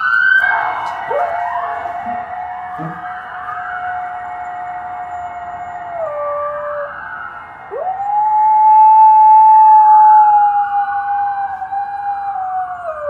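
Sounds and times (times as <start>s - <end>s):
faint siren wailing: 0.0s - 13.0s
dog howling: 1.1s - 3.2s, 3.8s - 7.0s, 7.7s - 13.0s.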